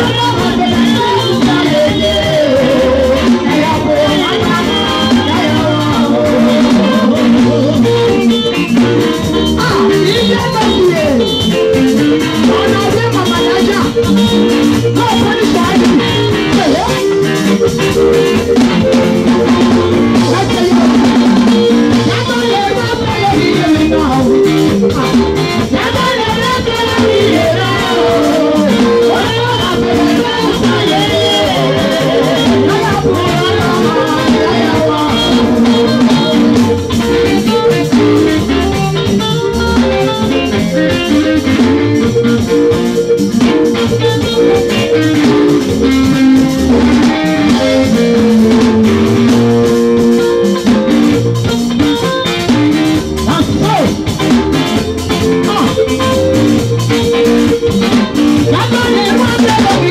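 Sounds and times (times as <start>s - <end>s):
woman singing into a microphone: 0.0s - 42.5s, 57.7s - 59.9s
live band with drum kit: 0.0s - 59.9s.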